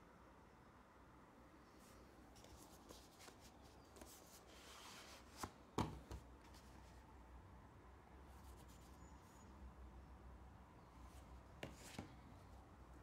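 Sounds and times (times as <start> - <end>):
cardboard rubbing and sliding: 2.4 - 5.6, 11.6 - 12.2.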